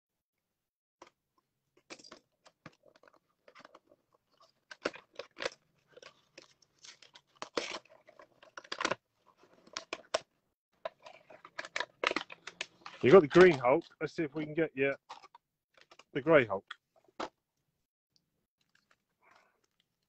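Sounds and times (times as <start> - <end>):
crinkling and tearing packaging: 2.4 - 14.5.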